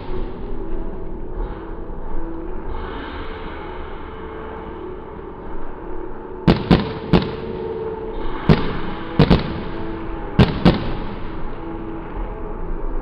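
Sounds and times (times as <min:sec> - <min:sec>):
fireworks bursting: 0:06.5 - 0:11.6.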